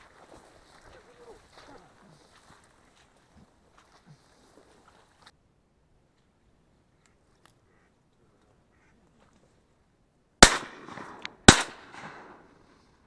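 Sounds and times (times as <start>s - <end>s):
shotgun shots with echo: 10.4s - 12.5s.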